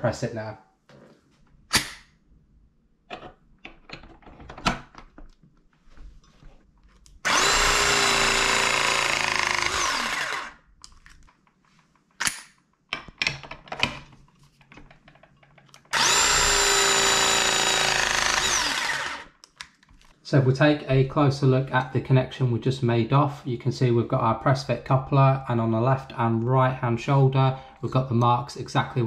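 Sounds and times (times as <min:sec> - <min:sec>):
press tool motor whine: 0:07.2 - 0:10.6, 0:15.9 - 0:19.3.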